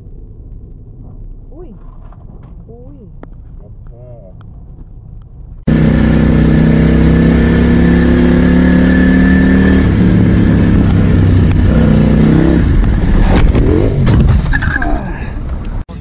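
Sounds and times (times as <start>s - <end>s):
motorcycle engine at high revs: 5.7s - 12.9s.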